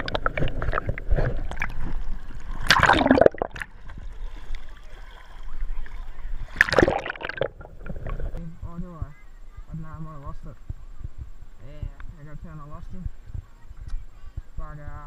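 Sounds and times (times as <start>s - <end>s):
water splash: 0.0s - 5.6s, 6.4s - 8.4s
water sloshing and gurgling: 0.0s - 8.8s.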